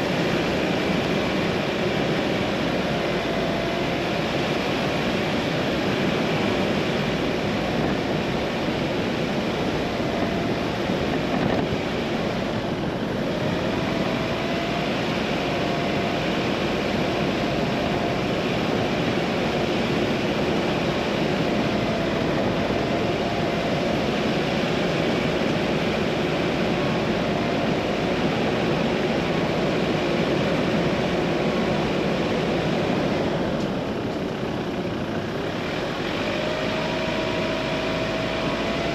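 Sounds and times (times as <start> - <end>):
car engine and tyre noise: 0.0 - 38.9.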